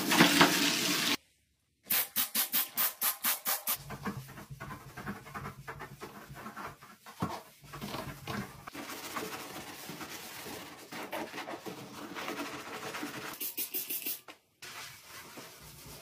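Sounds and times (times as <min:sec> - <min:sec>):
spray bottle squirts: 0:13.4 - 0:14.2.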